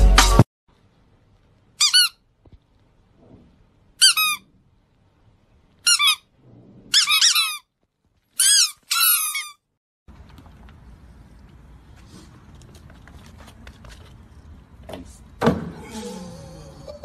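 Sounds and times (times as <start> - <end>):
squeaky dog toy squeaks: 1.8 - 2.2, 4.0 - 4.5, 5.8 - 6.3, 6.9 - 7.7, 8.4 - 9.7.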